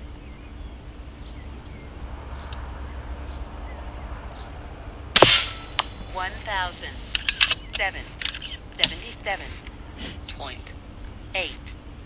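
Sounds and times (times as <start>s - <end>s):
air rifle shot: 5.2s - 5.9s.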